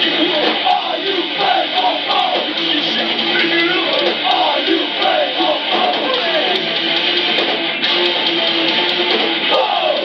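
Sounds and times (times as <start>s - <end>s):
strummed electric guitar: 0.0s - 10.0s
person shouting or singing: 9.5s - 10.0s.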